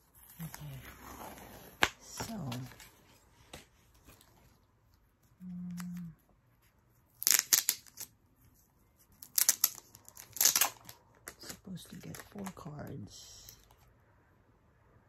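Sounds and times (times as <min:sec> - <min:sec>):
low steady hum: 0:00.0 - 0:07.2
plastic sleeves crinkling: 0:07.1 - 0:12.7.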